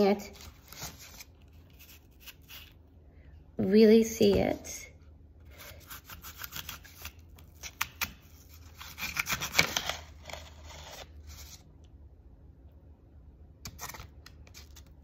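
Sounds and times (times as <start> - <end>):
knife scraping through apple: 0.4 - 2.8, 5.5 - 11.6.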